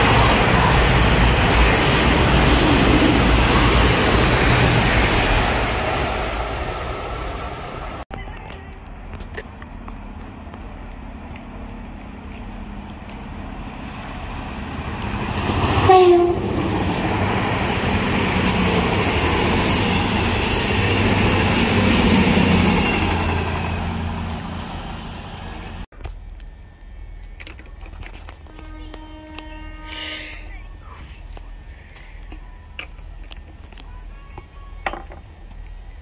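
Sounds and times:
train cars rumbling past: 0.0s - 25.9s
train horn blast: 15.7s - 17.1s, 28.4s - 30.4s.

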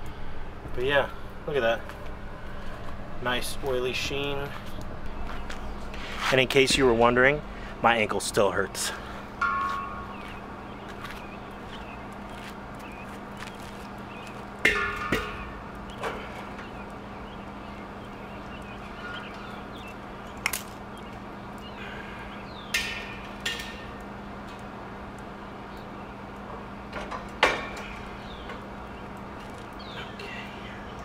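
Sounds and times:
steady low hum: 0.0s - 31.0s
metal cylinder knocks and clanks: 9.4s - 10.3s.

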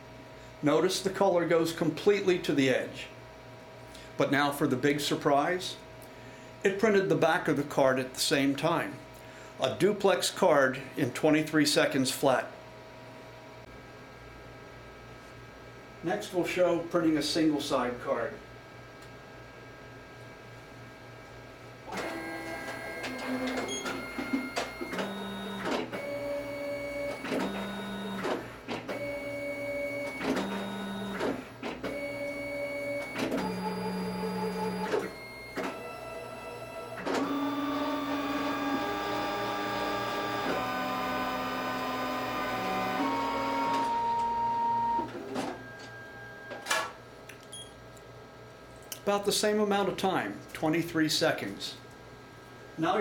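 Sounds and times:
printer motors whirring: 21.9s - 46.7s.

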